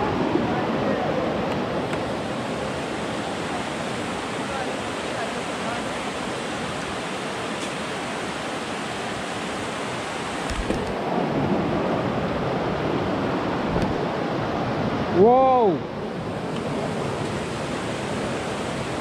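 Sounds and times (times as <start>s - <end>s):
river rushing over rocks: 0.0s - 19.0s.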